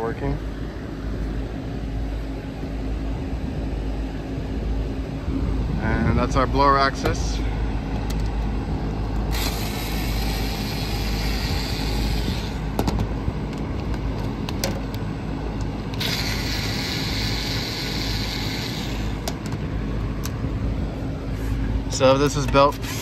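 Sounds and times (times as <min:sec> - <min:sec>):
air conditioning unit humming: 0:00.0 - 0:23.0
hiss: 0:09.3 - 0:12.7, 0:16.0 - 0:19.2.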